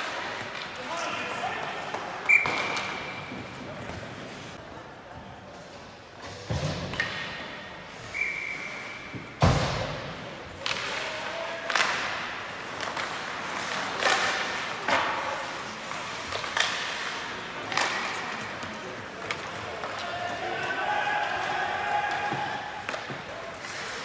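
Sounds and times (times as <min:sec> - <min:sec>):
hockey sticks and puck knocking: 0:09.2 - 0:24.0.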